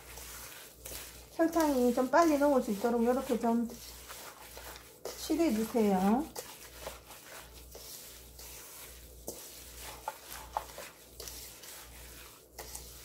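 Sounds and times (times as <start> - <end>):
faint wet mixing noise: 0.0 - 13.0.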